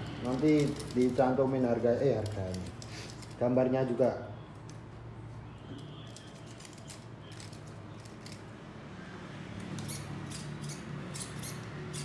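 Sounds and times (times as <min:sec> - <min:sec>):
metal links clicking and rattling: 0:00.2 - 0:03.4, 0:06.0 - 0:08.5.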